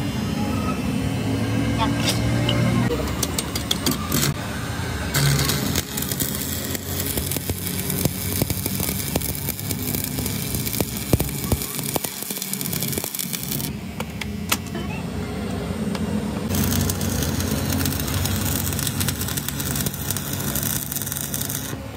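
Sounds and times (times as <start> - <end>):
arc welding crackling hiss: 5.1 - 13.7, 16.5 - 21.8.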